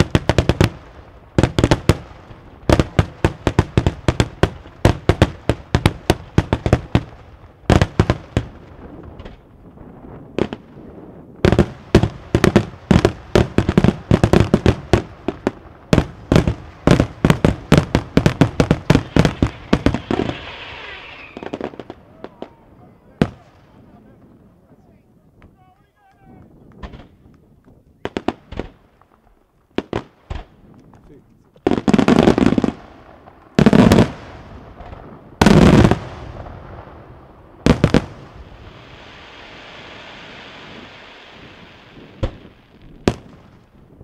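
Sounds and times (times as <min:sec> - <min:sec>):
fireworks bursting with sharp bangs: 0:00.0 - 0:44.0
fireworks hissing: 0:16.4 - 0:23.5, 0:37.8 - 0:43.0.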